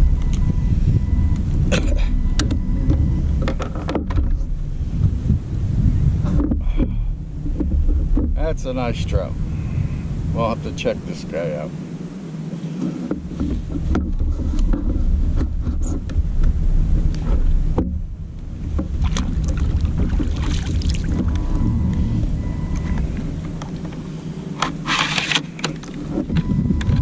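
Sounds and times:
wind on microphone: 0.0s - 27.0s
water slapping plastic hull: 17.1s - 21.7s.

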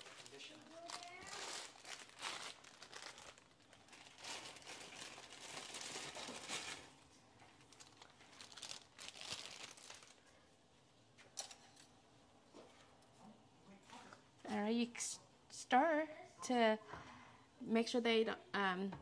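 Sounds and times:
plastic packet crinkling: 0.0s - 10.3s.

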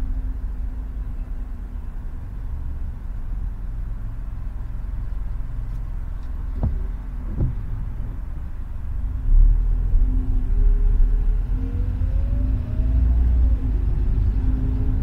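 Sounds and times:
car engine rumble: 0.0s - 15.0s
road noise on wet road: 0.0s - 15.0s
windshield wiper sweep: 6.2s - 8.2s
short knock: 6.5s - 7.8s.

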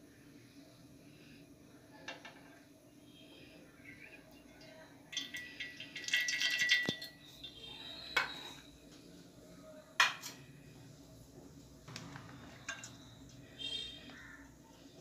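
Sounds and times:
kitchen vessels rattling: 5.1s - 8.6s, 12.2s - 13.1s.

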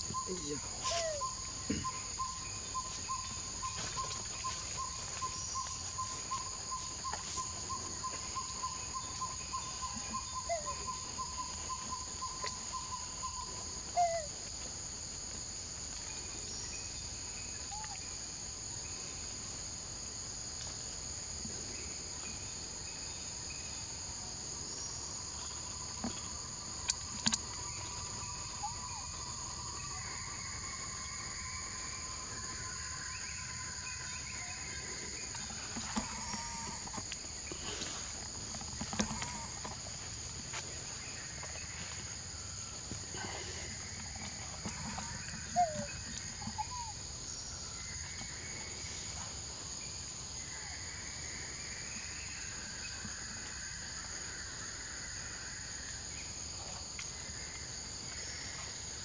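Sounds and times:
insects droning: 0.0s - 59.0s
insect pulsing trill: 25.3s - 49.2s.

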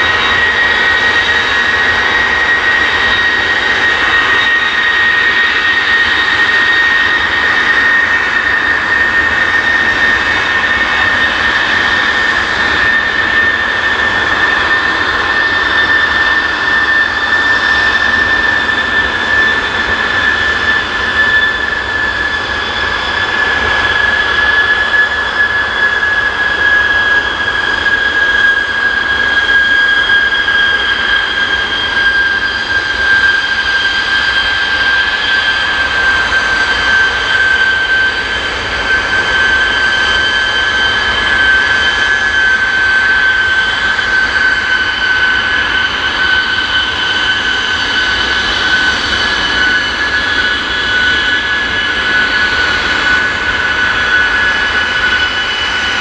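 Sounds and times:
jet engines roaring with whine: 0.0s - 56.0s.

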